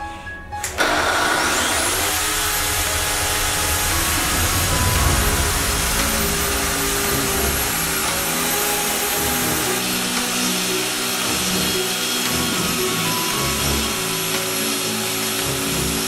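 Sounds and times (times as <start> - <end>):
track saw cutting resin: 0.6 - 16.0.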